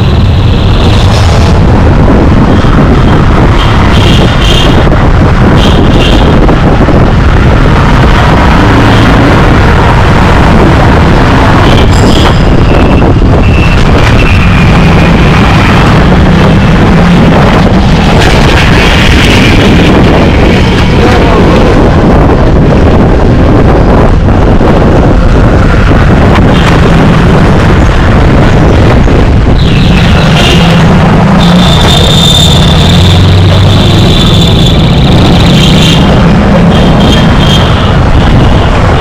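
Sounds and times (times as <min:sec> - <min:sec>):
street traffic noise: 0:00.0 - 0:39.0
wind buffeting microphone: 0:00.0 - 0:39.0.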